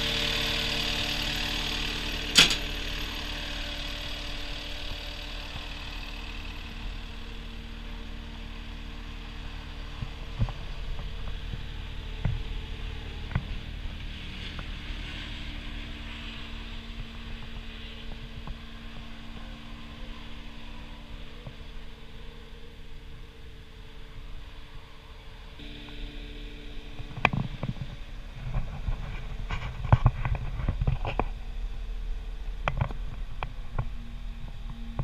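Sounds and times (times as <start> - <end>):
diesel engine idling: 0.0 - 35.0.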